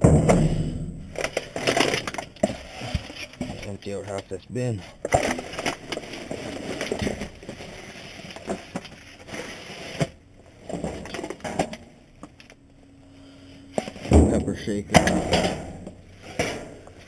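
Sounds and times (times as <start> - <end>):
plastic bags crinkling: 5.0 - 10.3.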